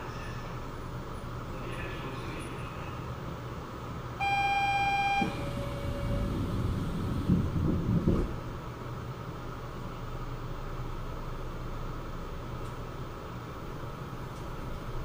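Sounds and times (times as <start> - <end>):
electronic two-tone chime: 4.2 - 6.8
train car hum: 4.2 - 9.2
low train rumble: 4.3 - 9.0.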